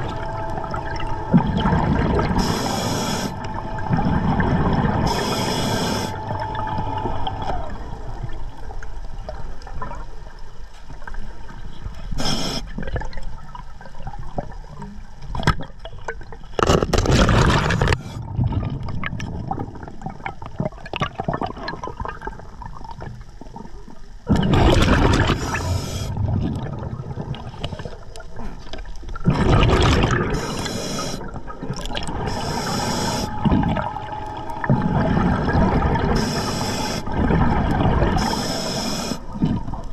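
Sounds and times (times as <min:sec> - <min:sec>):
regulator hissing: 0:00.0 - 0:08.7, 0:32.1 - 0:37.2, 0:38.2 - 0:39.4
exhaled bubbles gurgling: 0:00.0 - 0:39.9
underwater rumble: 0:00.0 - 0:39.9.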